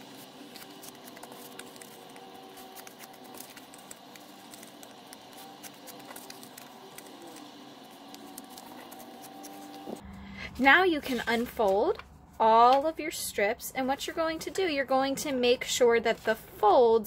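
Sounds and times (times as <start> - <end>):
paper rustling and crackling: 0.0 - 10.0, 11.0 - 12.1.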